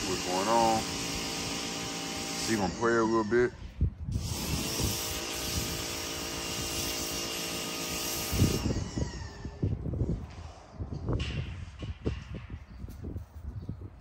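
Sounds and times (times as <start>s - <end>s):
motor running steadily: 0.0s - 3.3s
low thumps and rumble: 8.8s - 14.0s.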